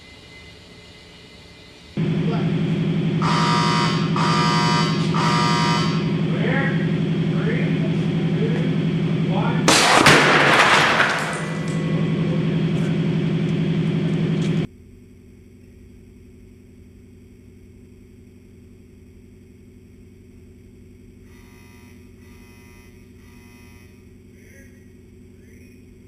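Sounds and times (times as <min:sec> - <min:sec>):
steady low hum: 0:00.0 - 0:26.0
wood pieces clattering: 0:09.7 - 0:11.8
timber crashing against steel door: 0:09.7 - 0:12.4.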